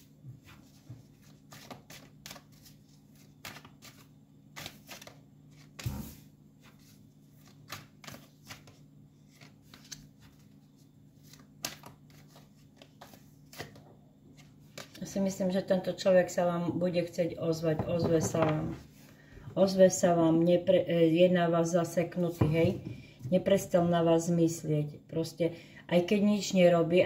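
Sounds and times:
faint steady hum: 0.0s - 27.0s
cards clicking and slapping on wood: 3.4s - 4.0s, 7.5s - 8.8s, 11.3s - 13.8s
knock on wooden table: 17.8s - 18.8s, 22.4s - 23.0s.

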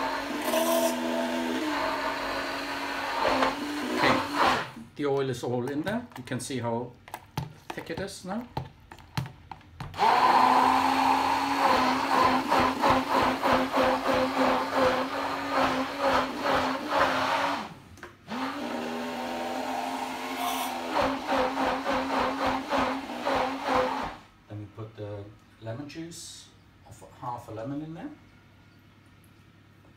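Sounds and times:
stick blender motor pulsing: 0.0s - 4.8s, 10.0s - 17.7s.

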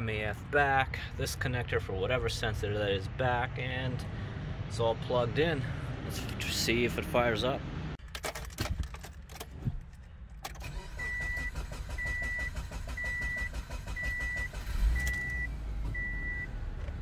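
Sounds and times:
car engine idling: 9.8s - 17.0s
dashboard warning chime beeping: 10.8s - 16.5s.

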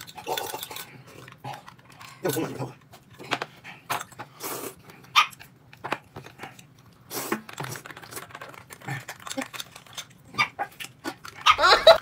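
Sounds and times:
person chewing food: 2.9s - 11.6s.

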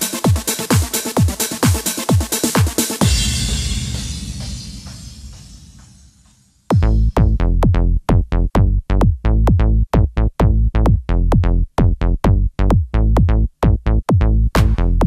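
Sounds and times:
electronic music with heavy beat: 0.0s - 7.8s, 14.1s - 15.0s.

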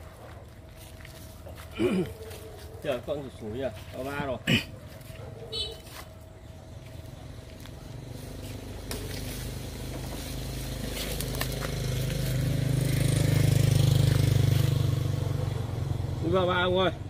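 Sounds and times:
motorcycle engine humming: 4.1s - 17.0s.

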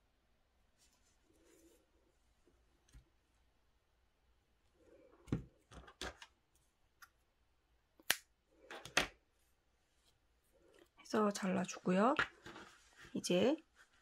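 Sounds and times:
yarn and fabric rustling: 9.4s - 14.0s.

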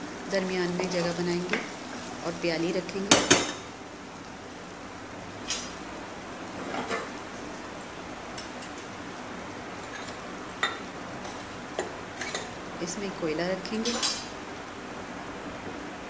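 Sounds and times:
low hiss from pan: 0.0s - 14.7s
metal tongs clinking on steel: 13.8s - 14.3s.

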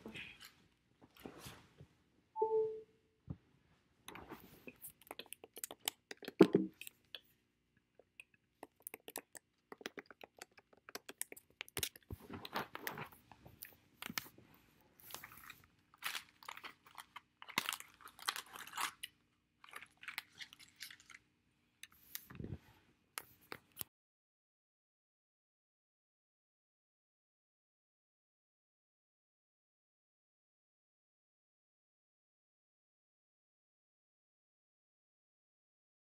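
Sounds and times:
chewing crunchy food: 4.6s - 14.3s, 15.0s - 22.3s.

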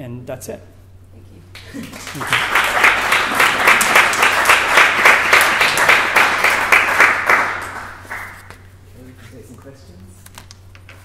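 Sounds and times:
audience applauding: 1.6s - 8.6s.

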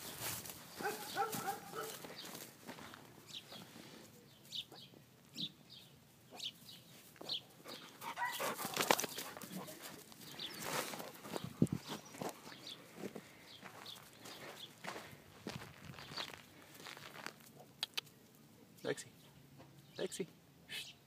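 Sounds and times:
paws rustling on dry grass: 0.0s - 4.6s, 6.6s - 17.7s.

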